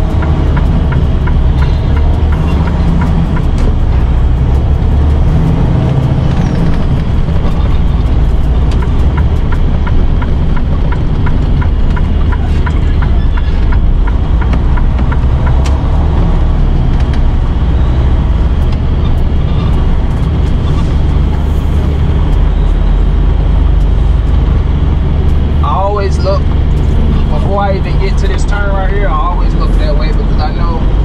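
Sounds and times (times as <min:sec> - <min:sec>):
truck diesel engine drone: 0:00.0 - 0:31.0
turn signal ticking: 0:00.0 - 0:31.0.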